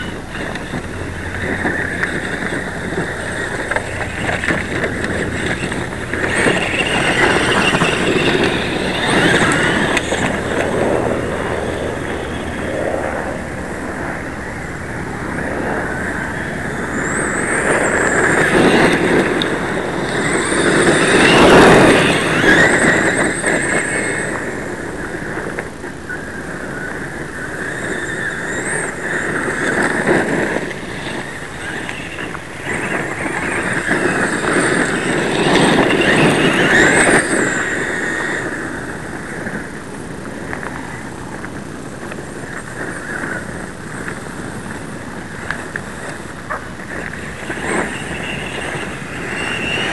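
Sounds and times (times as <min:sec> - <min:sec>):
tyres crunching on gravel: 0:00.0 - 0:12.7, 0:16.1 - 0:24.5
electric motor and gearbox whine: 0:00.0 - 0:49.9.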